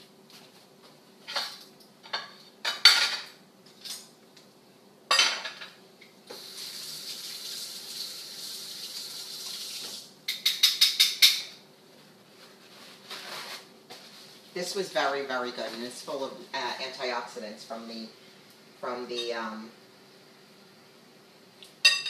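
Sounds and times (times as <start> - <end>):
dishes and cutlery clinking: 1.3 - 4.0, 10.3 - 11.6
kitchen tap running: 6.3 - 10.6.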